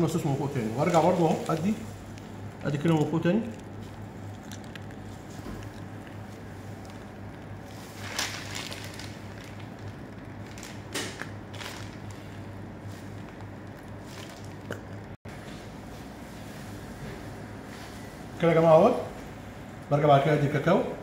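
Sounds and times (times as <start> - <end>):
steady low hum: 0.0 - 21.0
whipped cream squishing: 0.1 - 15.2.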